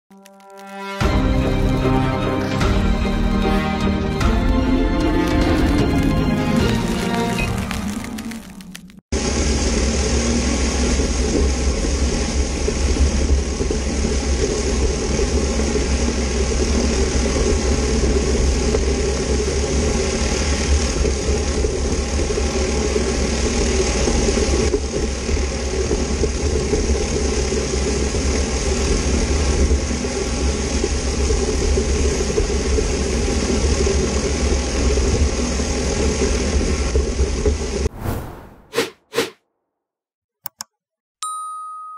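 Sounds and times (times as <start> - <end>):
pressure washer drone: 9.2 - 31.2.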